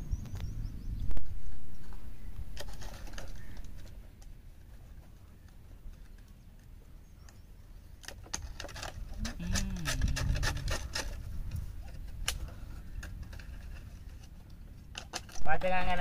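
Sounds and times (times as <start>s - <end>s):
plastic and wire scraping: 2.5s - 6.2s, 8.0s - 15.5s.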